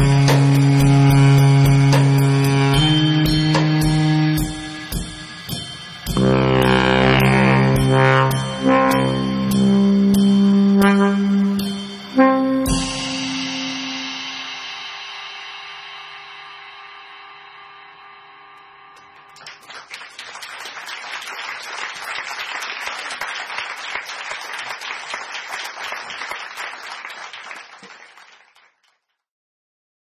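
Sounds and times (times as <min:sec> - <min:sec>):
held music notes ringing: 0:00.0 - 0:19.6
audience applause: 0:19.3 - 0:29.0.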